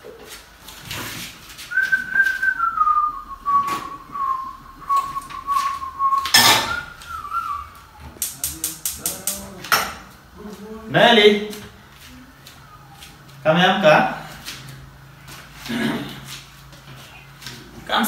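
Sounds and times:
person whistling a slow tune: 1.7s - 8.0s
cookware clinking: 6.3s - 6.8s
metal pan clanking on stove: 6.3s - 6.8s.

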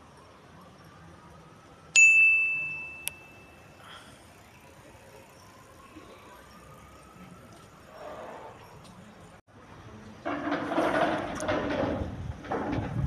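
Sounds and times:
faint street background noise: 0.0s - 13.0s
bright bell ding: 2.0s - 3.6s.

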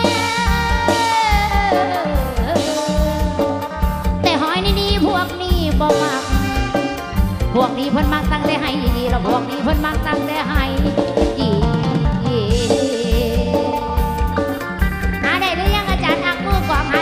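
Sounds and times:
drum-kit beat: 0.0s - 17.0s
melody with sliding bending notes: 0.0s - 17.0s.

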